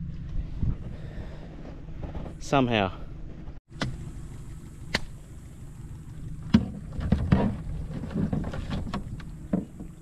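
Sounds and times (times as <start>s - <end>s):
wind noise on microphone: 0.0s - 2.4s.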